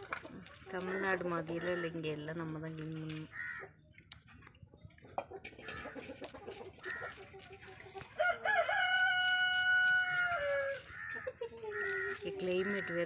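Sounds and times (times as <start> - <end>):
rooster crowing: 8.2 - 11.2.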